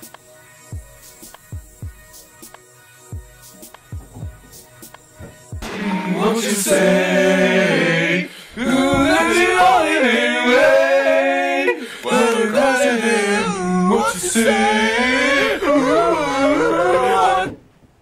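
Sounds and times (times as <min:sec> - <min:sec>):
person singing long notes: 0:05.7 - 0:17.6.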